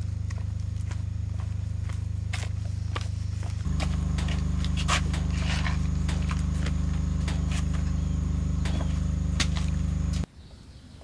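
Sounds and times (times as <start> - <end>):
low pulsing drone hum: 0.0 - 10.3
light taps and clicks: 3.7 - 10.2.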